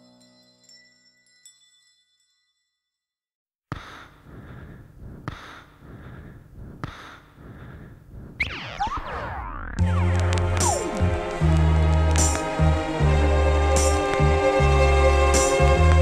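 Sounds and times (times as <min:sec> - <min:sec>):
electronic sweeps: 0:08.4 - 0:11.3.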